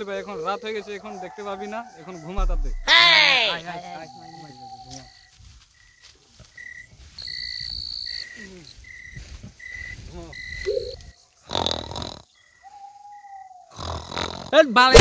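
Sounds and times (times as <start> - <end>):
cricket chirping: 0.0 - 15.0
harsh animal call burst: 2.4 - 3.6.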